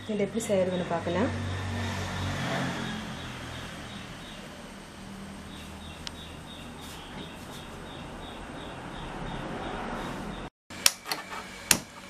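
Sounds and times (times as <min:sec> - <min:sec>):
steady background noise: 0:00.0 - 0:10.5.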